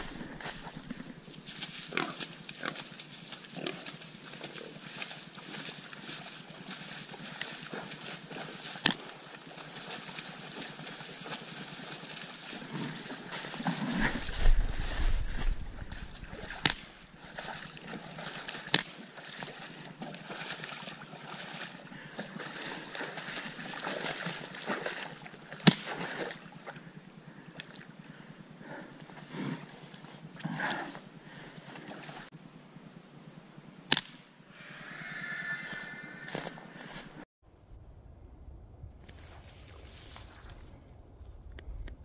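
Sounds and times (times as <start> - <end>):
splashing in shallow water: 0.0 - 32.3
hog squealing: 34.6 - 36.9.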